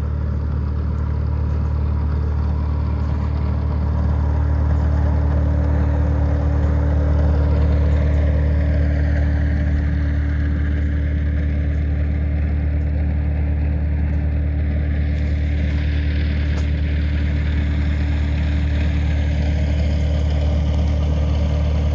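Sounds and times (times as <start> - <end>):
diesel engine running: 0.0 - 21.9.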